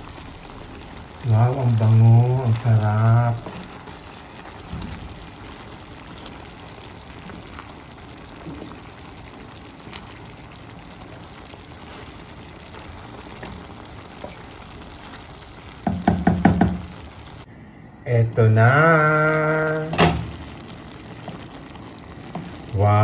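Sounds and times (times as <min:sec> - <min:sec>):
food sizzling in a pan: 0:00.0 - 0:17.5, 0:18.3 - 0:23.0
person speaking: 0:01.2 - 0:03.7, 0:18.0 - 0:20.4, 0:22.6 - 0:23.0.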